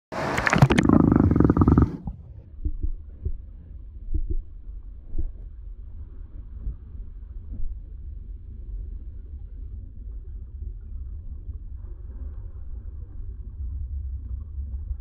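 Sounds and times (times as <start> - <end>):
underwater splashing and bubbles: 0.1 - 3.5
muffled underwater rumble: 0.2 - 15.0.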